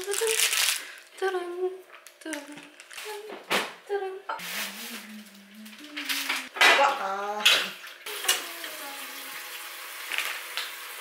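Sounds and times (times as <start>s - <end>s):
dishes being washed: 4.3s - 11.0s.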